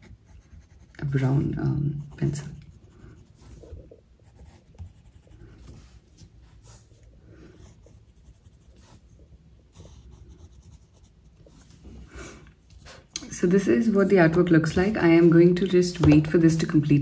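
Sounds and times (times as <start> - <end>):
colour pencil scratching on paper: 0.0 - 12.0.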